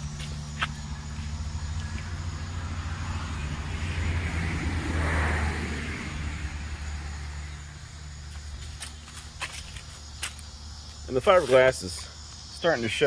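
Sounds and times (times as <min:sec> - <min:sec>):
vehicle passing: 0:00.0 - 0:08.8
low traffic rumble: 0:00.0 - 0:13.0.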